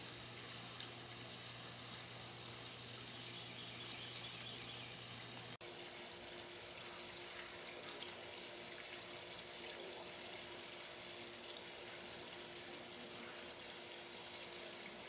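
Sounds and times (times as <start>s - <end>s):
faint constant hum: 0.0s - 15.0s
outdoor hiss-like wash: 0.0s - 15.0s.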